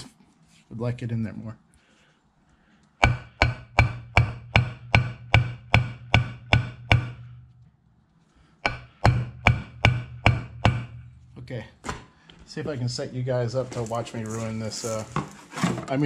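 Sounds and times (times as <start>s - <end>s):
hammer striking metal: 3.0s - 7.6s, 8.6s - 11.2s.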